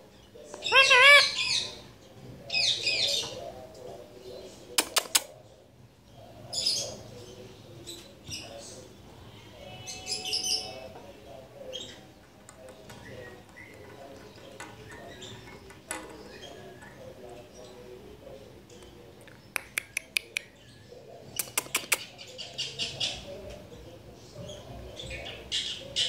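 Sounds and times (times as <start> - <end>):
parakeet chirping: 0.6 - 1.7
sharp clicks: 19.3 - 20.4, 21.4 - 22.1.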